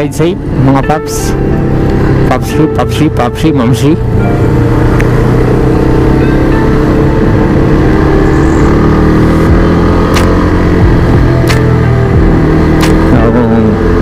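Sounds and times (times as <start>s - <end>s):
motorcycle engine running: 0.0s - 14.0s
road noise: 0.0s - 14.0s
sharp clicks: 10.1s - 10.4s, 11.4s - 11.7s, 12.8s - 13.1s.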